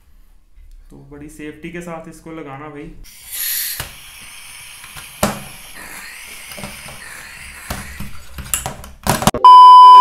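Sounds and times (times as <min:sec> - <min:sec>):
gas hissing: 0:03.1 - 0:08.6
test-tone beep: 0:09.4 - 0:10.0.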